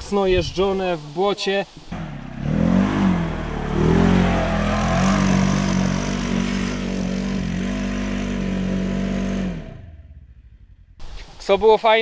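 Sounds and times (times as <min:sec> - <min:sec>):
off-road vehicle engine revving: 0:01.9 - 0:11.1.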